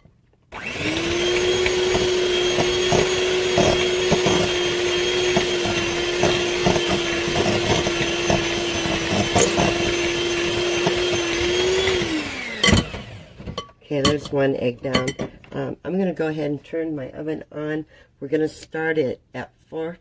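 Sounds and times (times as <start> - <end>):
electric hand mixer running: 0.5 - 13.5
mixer knocking and rattling: 0.5 - 14.3.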